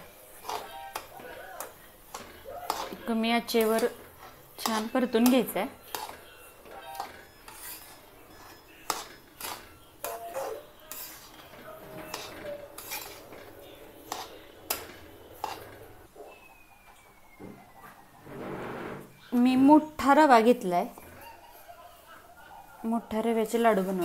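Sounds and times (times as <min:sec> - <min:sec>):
spoon scraping metal pan: 0:00.0 - 0:16.1.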